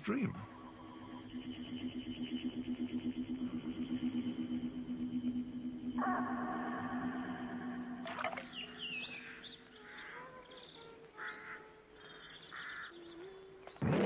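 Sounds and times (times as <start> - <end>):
birds chirping: 0.0 - 14.0
faint outdoor ambience: 0.0 - 14.0.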